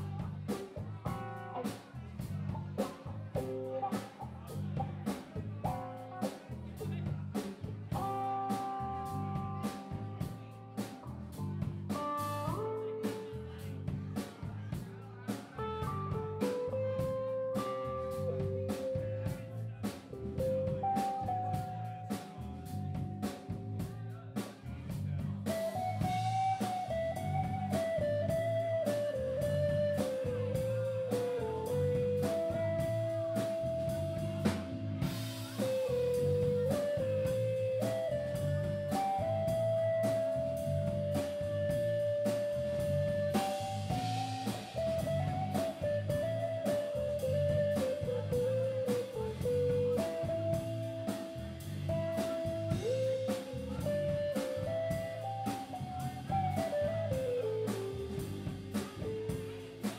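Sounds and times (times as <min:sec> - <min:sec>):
live blues rock band: 0:00.0 - 0:59.9
electric guitar lead line: 0:25.5 - 0:57.9.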